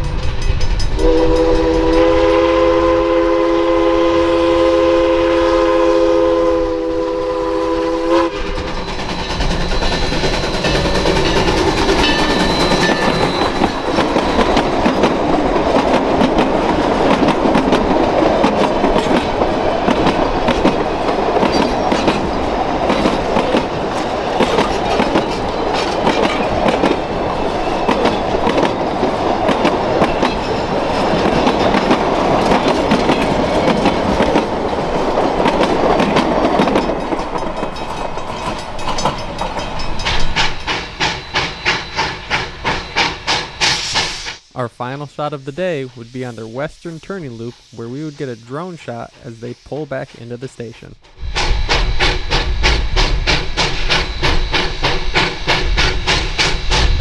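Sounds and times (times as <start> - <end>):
steam train running past: 0.0 - 57.0
wheels clicking on rails: 8.4 - 44.2.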